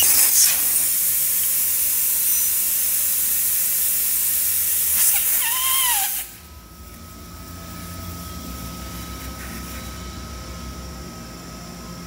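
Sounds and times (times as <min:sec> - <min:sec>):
compressed air hissing: 0:00.0 - 0:06.4.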